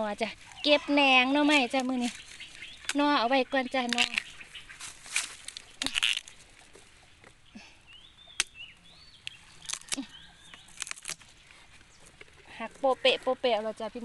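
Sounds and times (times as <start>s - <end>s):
stalks and dry leaves crackling: 0.0s - 14.0s
bamboo shoots snapping: 1.4s - 7.4s, 8.4s - 8.6s, 9.2s - 12.4s
faint bird chirps: 7.0s - 12.1s.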